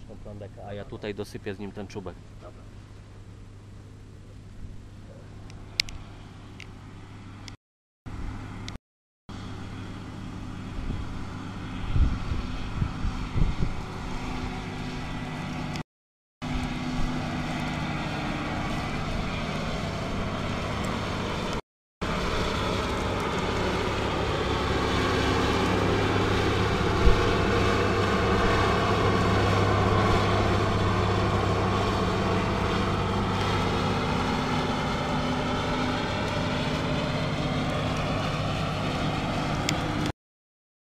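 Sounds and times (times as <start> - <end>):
combine harvester diesel engine: 16.5 - 40.1.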